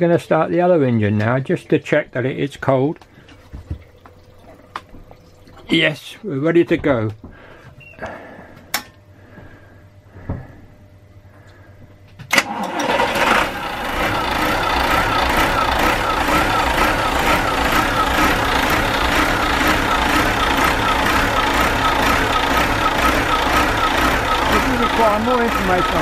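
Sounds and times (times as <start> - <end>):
diesel engine running: 12.4 - 26.0.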